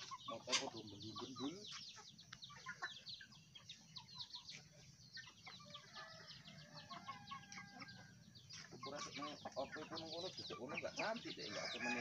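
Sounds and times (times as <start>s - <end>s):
chickens chirping and peeping: 0.0s - 12.0s
chickens clucking: 0.0s - 12.0s
chicken drawn-out call: 11.4s - 12.0s.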